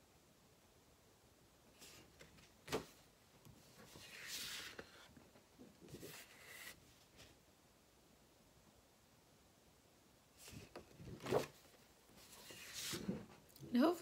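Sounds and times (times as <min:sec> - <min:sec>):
paper rustling and sliding: 0:01.8 - 0:07.4, 0:10.4 - 0:13.4.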